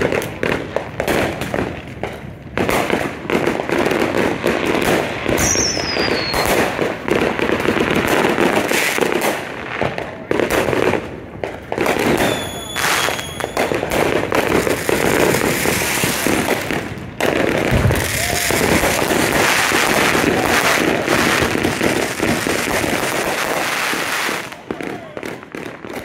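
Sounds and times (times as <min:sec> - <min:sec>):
fireworks crackling and popping: 0:00.0 - 0:26.0
firework whistle: 0:05.3 - 0:06.8, 0:11.8 - 0:16.3, 0:17.7 - 0:26.0
deep firework boom: 0:13.1 - 0:23.0.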